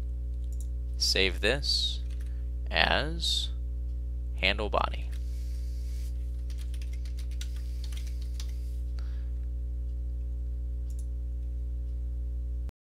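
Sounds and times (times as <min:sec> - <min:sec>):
low electrical hum: 0:00.0 - 0:12.7
keyboard typing: 0:02.0 - 0:02.3, 0:06.4 - 0:08.8.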